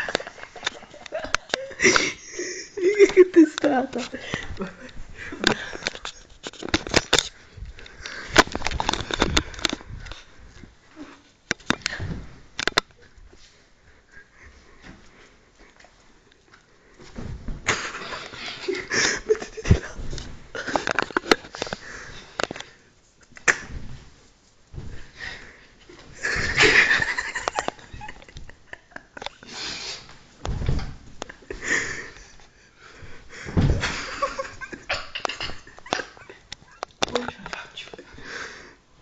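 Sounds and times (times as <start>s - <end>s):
people laughing: 0.0s - 3.6s, 17.7s - 20.0s
heavy thumps of bodies landing: 11.6s - 13.0s, 17.0s - 22.4s, 23.6s - 28.7s, 30.2s - 32.1s, 32.9s - 35.9s.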